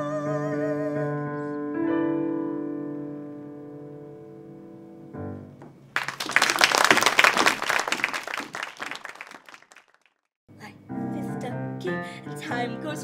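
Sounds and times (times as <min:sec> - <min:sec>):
audience clapping: 0:06.0 - 0:10.2
piano chord: 0:10.5 - 0:13.0.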